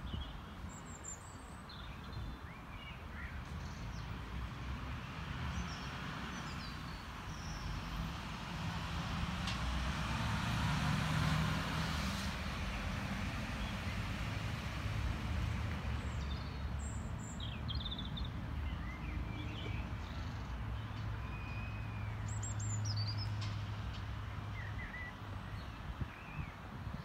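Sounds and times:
road traffic rumble: 0:00.0 - 0:27.0
vehicle passing: 0:07.9 - 0:16.3.

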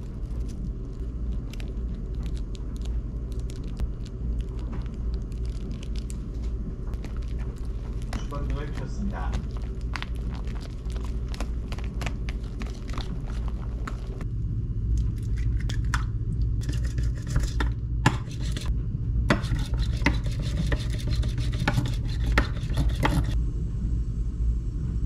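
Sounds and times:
steady low hum: 0:00.0 - 0:25.0
chopsticks beating eggs in bowl: 0:06.9 - 0:14.2, 0:16.6 - 0:18.7, 0:19.3 - 0:23.4
chopsticks stirring sticky food: 0:07.0 - 0:14.2, 0:19.4 - 0:23.4.

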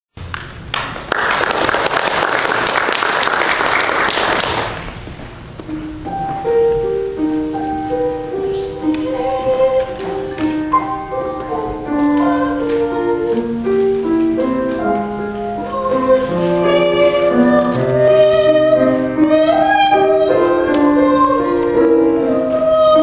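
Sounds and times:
audience applause: 0:00.7 - 0:04.9
grand piano notes: 0:04.1 - 0:23.0.

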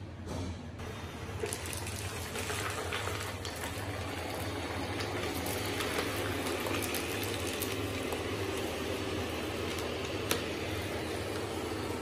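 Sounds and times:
robot vacuum whirring: 0:03.8 - 0:12.0.

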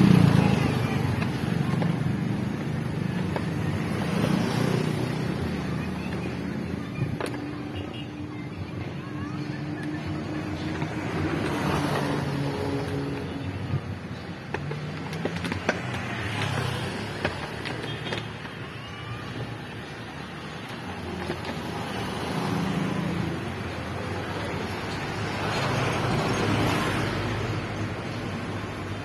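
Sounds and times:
motorcycles approaching: 0:00.0 - 0:07.6.

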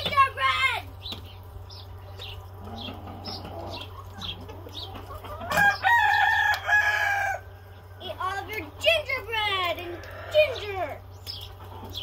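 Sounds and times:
chickens clucking: 0:00.0 - 0:12.0
rooster crowing: 0:05.5 - 0:07.5.

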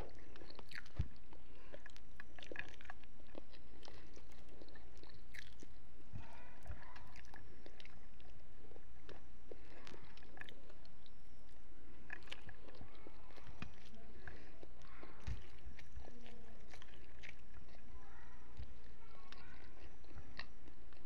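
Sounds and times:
person chewing food: 0:00.0 - 0:21.0.

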